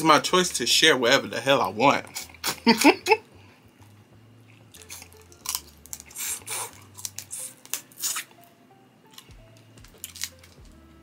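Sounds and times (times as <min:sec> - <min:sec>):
wet chewing and lip smacking: 0:04.4 - 0:08.3.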